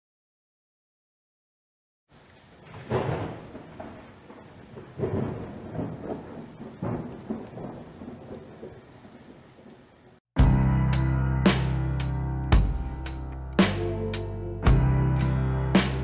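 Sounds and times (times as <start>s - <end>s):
steady rain: 2.1s - 10.3s
rolling thunder: 2.6s - 9.9s.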